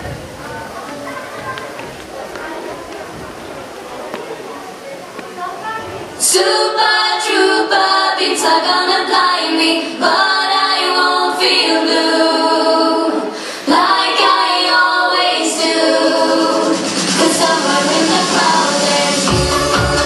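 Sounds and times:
dance song with female vocals: 6.2s - 20.0s.

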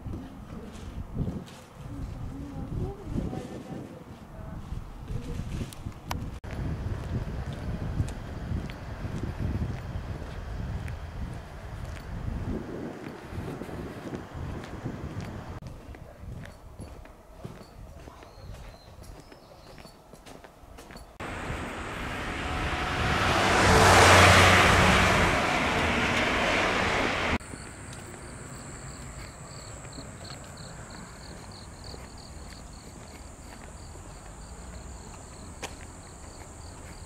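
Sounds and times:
car passing close by: 21.2s - 31.8s
insects chirping rapidly: 27.4s - 37.0s
steady high insect whine: 27.4s - 37.0s.

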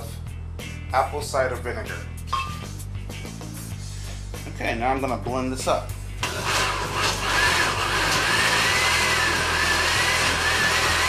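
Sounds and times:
blender motor whining: 6.2s - 11.0s.

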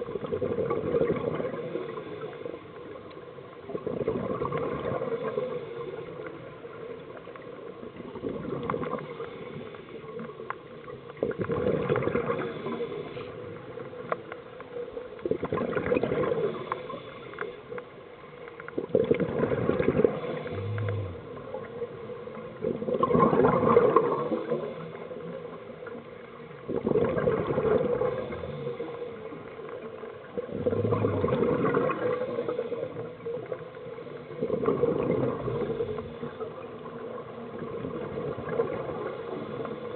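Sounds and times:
exhaled bubbles rushing: 0.0s - 2.0s, 3.6s - 5.6s, 11.2s - 12.8s, 15.2s - 16.7s, 18.8s - 24.8s, 26.6s - 28.8s, 30.2s - 33.5s, 34.3s - 39.9s
diver breathing through regulator: 20.1s - 21.4s.

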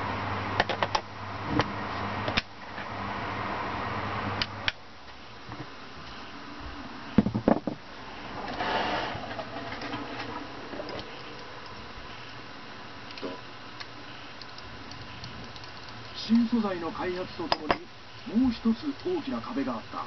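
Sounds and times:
low hum: 5.3s - 19.1s.

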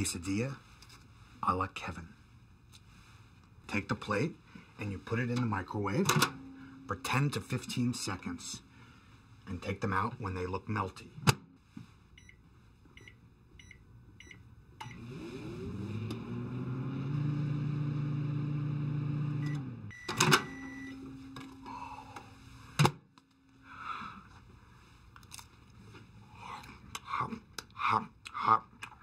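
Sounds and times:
microwave oven humming: 6.2s - 7.2s, 13.0s - 24.6s
keypad beeps: 19.5s - 21.0s
long beep: 19.5s - 21.3s.

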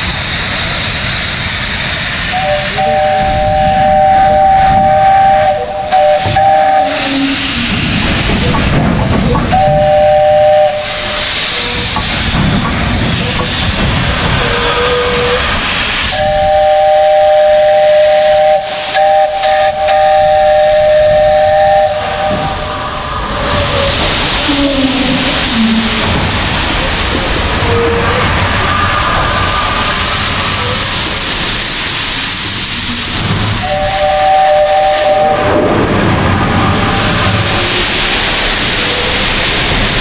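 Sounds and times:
steam hissing: 0.0s - 40.0s
steam whistle two-note chord: 33.6s - 35.5s.

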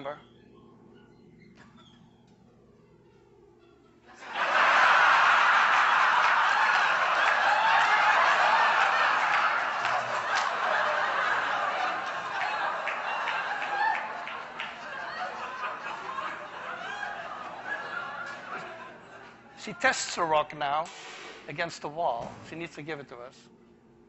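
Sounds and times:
audience laughing: 4.1s - 20.1s.

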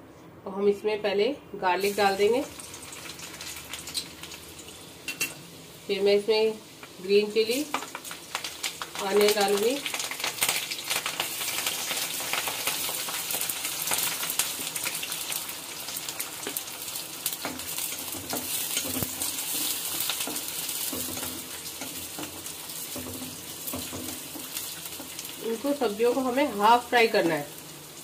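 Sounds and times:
vegetables sizzling in hot oil: 1.7s - 28.0s
spatula clicking and scraping: 17.4s - 25.2s.

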